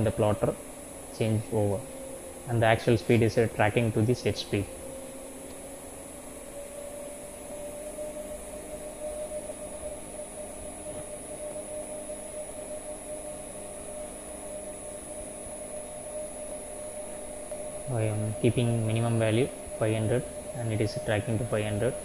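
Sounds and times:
faint high-pitched tone: 0:00.0 - 0:00.6, 0:06.4 - 0:22.0
electric motor whine: 0:00.0 - 0:22.0.

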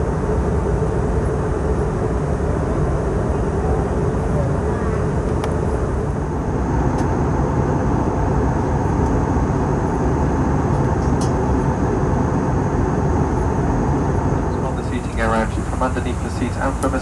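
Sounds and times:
airplane cabin drone: 0:00.0 - 0:17.0
faint high whine: 0:11.2 - 0:17.0.

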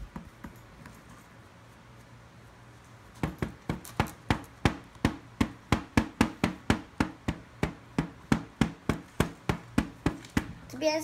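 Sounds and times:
hammer and chisel tapping: 0:03.2 - 0:10.5.

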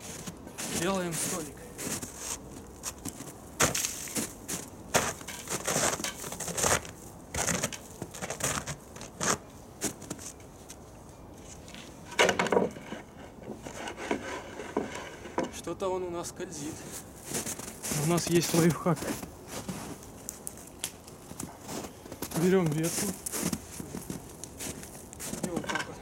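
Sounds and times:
table clattering: 0:12.1 - 0:13.0
table knocks and scrapes: 0:12.1 - 0:15.6.

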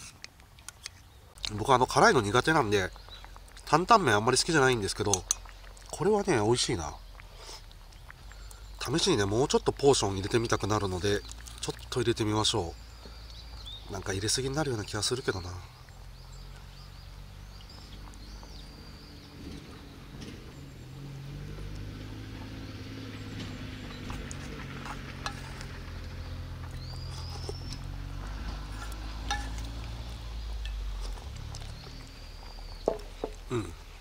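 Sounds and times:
bird chirps: 0:06.4 - 0:21.1, 0:22.4 - 0:33.9.

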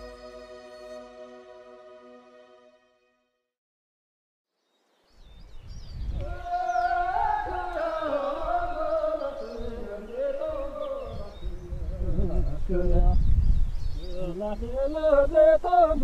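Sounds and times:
person singing slow song: 0:06.2 - 0:13.0.

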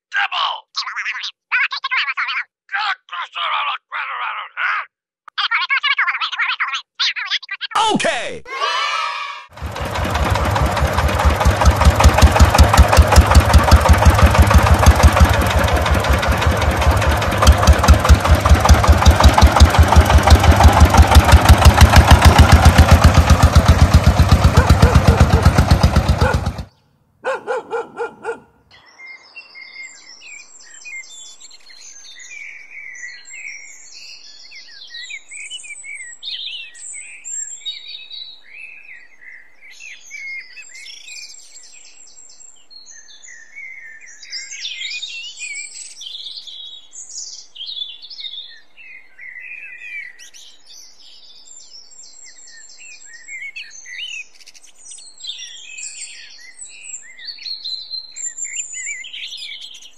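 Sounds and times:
small engine chugging: 0:09.6 - 0:26.7
faint birds chirping: 0:26.2 - 0:59.9.

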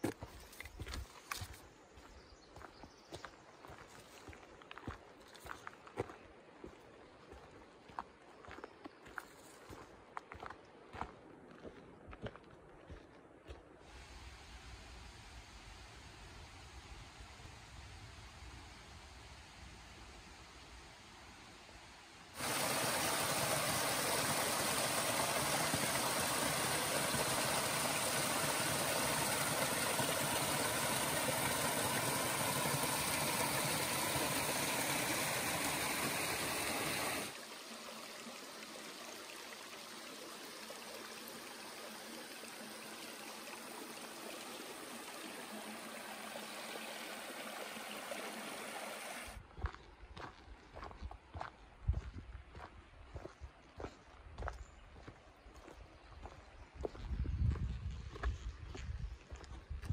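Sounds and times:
creek running over rocks: 0:00.0 - 0:13.6, 0:22.4 - 0:59.9
footsteps on trail: 0:00.0 - 0:13.8, 0:49.4 - 0:59.9.

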